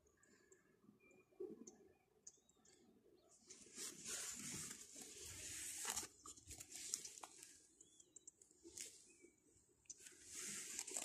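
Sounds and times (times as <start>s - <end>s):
dry grass rustling and crackling: 3.4s - 7.8s, 8.5s - 9.3s, 9.9s - 11.0s.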